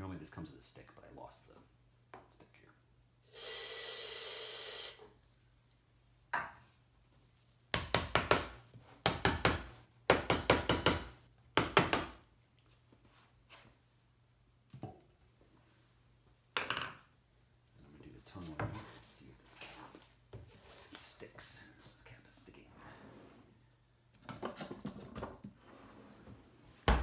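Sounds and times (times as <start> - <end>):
gas spray hiss: 3.2 - 5.0.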